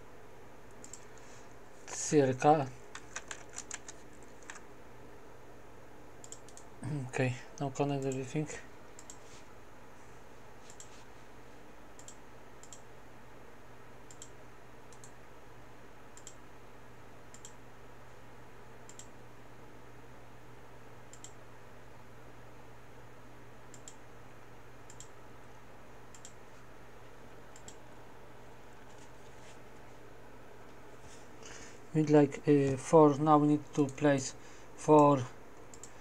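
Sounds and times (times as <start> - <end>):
faint low room hum: 0.0 - 36.0
computer mouse clicking: 0.7 - 1.2, 2.9 - 4.6, 6.2 - 6.7, 9.0 - 9.2, 10.6 - 11.0, 12.0 - 12.8, 14.1 - 15.2, 16.2 - 16.4, 17.3 - 17.6, 18.9 - 19.1, 21.1 - 21.4, 23.7 - 24.0, 24.9 - 25.2, 26.1 - 26.4, 27.5 - 27.8, 35.0 - 36.0.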